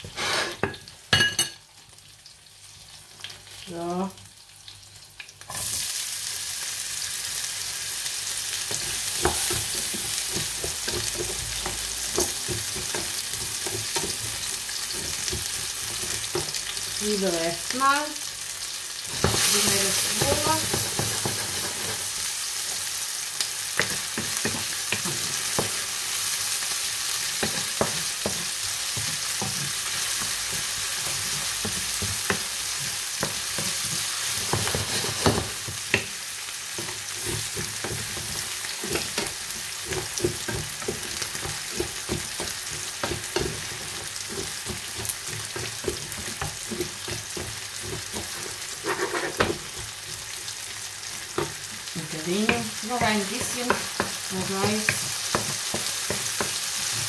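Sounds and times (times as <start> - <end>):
food sizzling in a pan: 0.0 - 57.0
utensil scraping and knocking pan: 36.8 - 49.9.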